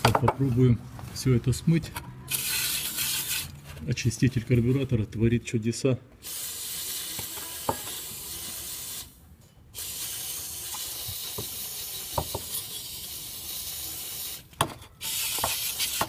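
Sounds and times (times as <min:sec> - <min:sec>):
aerosol can spraying: 0:06.2 - 0:09.1, 0:09.8 - 0:14.4, 0:15.0 - 0:16.0.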